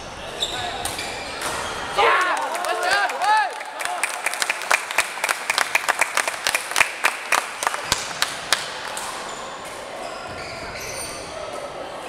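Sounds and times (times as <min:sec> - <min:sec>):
people clapping: 0:02.0 - 0:09.3.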